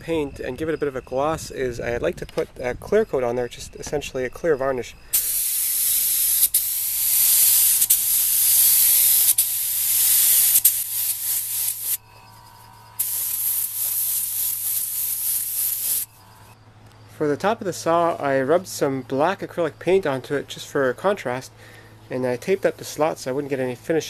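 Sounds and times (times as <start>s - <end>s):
spray gun hissing: 5.1s - 12.0s, 13.0s - 16.1s.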